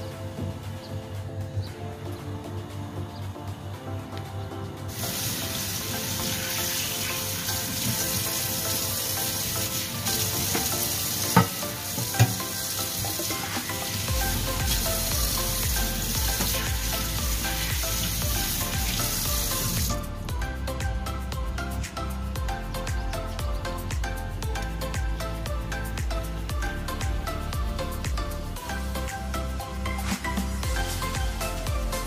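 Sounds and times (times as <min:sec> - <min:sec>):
tap running into steel sink: 0:11.3 - 0:12.6.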